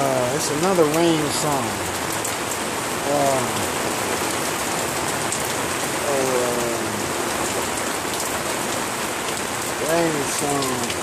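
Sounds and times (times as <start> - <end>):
steady rain falling: 0.0 - 11.0
man humming: 3.1 - 3.6, 6.0 - 7.0.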